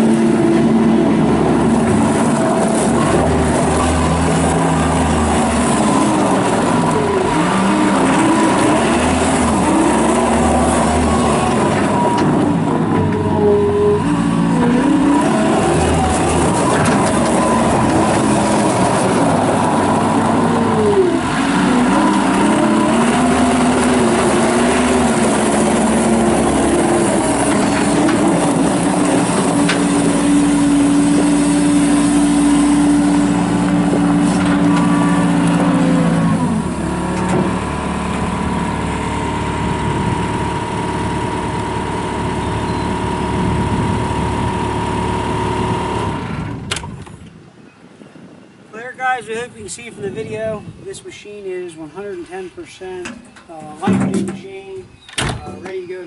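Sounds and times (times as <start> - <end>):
diesel engine running under load: 0.0 - 47.3.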